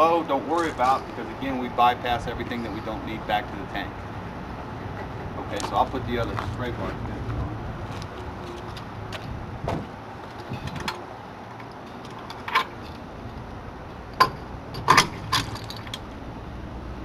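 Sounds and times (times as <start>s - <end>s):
metal clinks and knocks: 14.1s - 16.1s.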